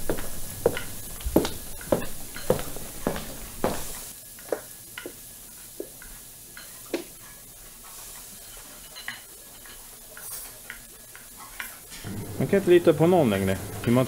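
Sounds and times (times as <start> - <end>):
footsteps on hard floor: 0.0 - 5.2
background hiss: 0.0 - 14.0
glassware clinking: 0.6 - 3.8.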